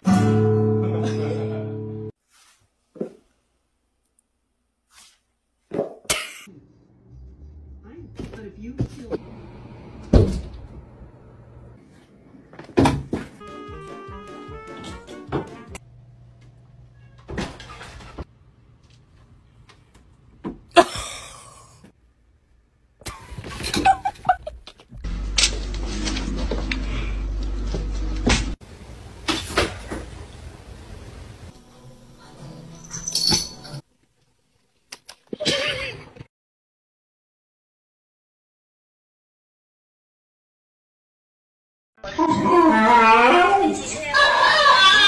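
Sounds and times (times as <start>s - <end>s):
acoustic guitar chord ringing: 0.0s - 2.0s.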